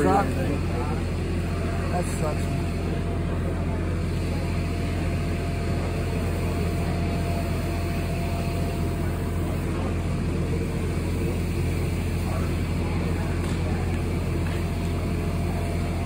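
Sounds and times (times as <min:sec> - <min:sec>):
low mechanical hum: 0:00.0 - 0:16.0.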